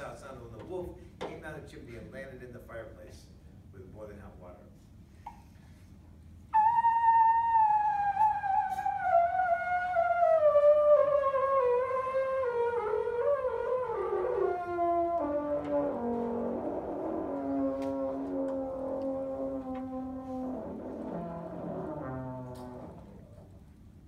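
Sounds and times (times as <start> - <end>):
trombone sliding and holding notes: 6.6 - 23.5.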